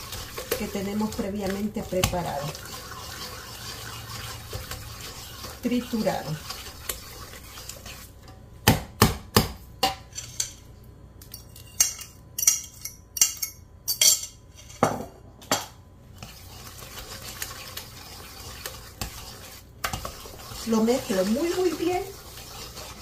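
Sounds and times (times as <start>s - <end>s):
whisking thick batter: 0.0s - 8.3s, 16.1s - 23.0s
whisk knocking metal bowl: 0.0s - 10.0s, 16.2s - 23.0s.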